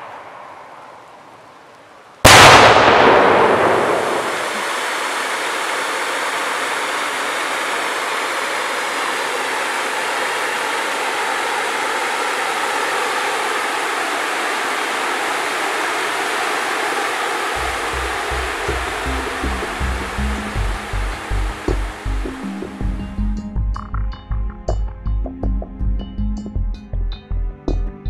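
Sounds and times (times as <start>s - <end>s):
firework loud burst: 2.2s - 11.9s
firework sparks hissing: 2.3s - 22.6s.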